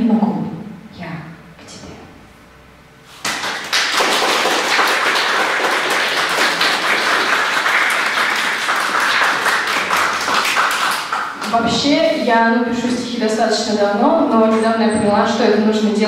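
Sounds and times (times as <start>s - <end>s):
audience applauding: 3.2s - 11.6s.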